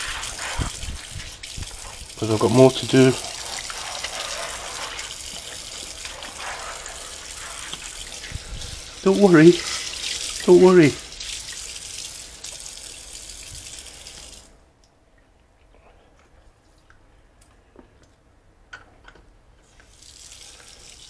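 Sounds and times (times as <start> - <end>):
tap water running into sink: 0.0 - 14.5.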